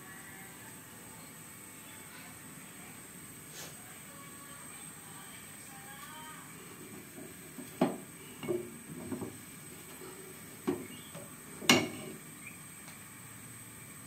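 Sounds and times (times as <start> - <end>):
spoon knocking against pot: 7.2 - 9.4, 10.6 - 12.2.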